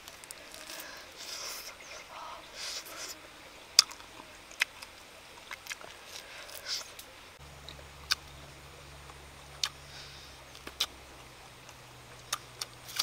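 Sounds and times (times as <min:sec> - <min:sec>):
person chewing wetly: 0:03.8 - 0:07.0, 0:07.7 - 0:08.3, 0:09.1 - 0:11.0, 0:11.6 - 0:13.0
lip smacks: 0:03.8 - 0:07.1, 0:09.6 - 0:11.0, 0:11.6 - 0:13.0.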